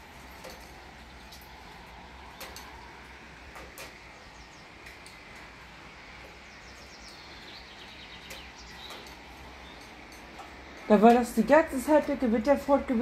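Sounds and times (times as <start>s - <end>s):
rain and wind hissing: 0.0s - 13.0s
bird chirping: 4.1s - 5.4s, 6.2s - 11.0s.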